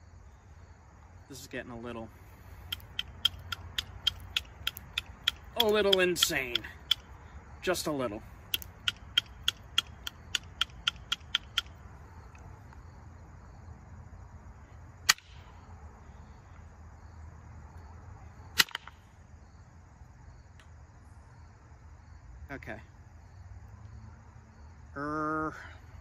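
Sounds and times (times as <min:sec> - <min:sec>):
antler tapping flint: 0:02.4 - 0:07.1, 0:08.5 - 0:12.4.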